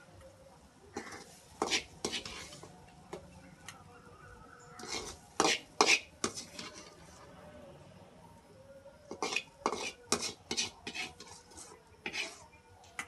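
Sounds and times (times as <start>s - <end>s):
metal spoon scraping steel pan: 1.0s - 2.7s, 4.8s - 7.0s, 9.1s - 12.5s.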